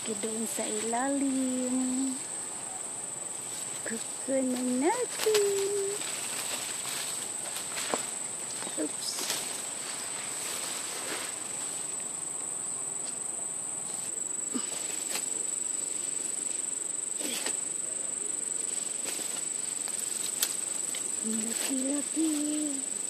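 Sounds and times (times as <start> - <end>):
high-pitched insect chorus: 0.0 - 23.0
rustles and clicks: 3.4 - 12.0, 13.9 - 16.5, 18.6 - 22.9.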